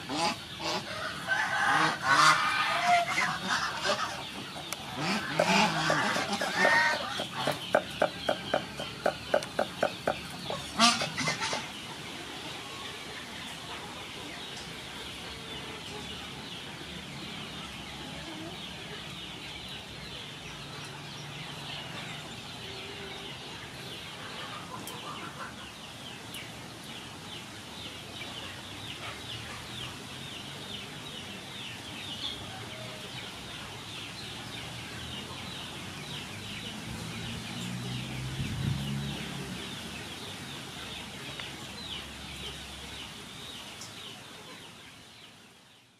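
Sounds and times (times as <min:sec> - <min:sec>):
poultry calling: 0:00.0 - 0:11.8.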